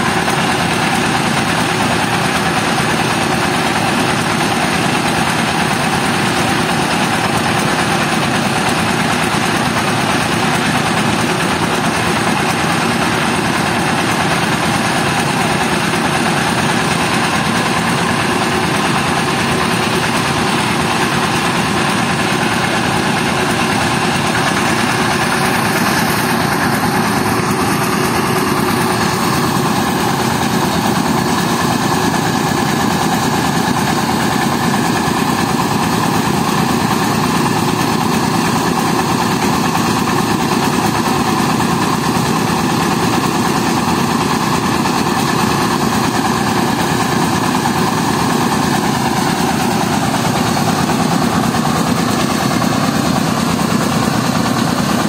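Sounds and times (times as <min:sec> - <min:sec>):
rice mill engine droning: 0:00.0 - 0:55.0.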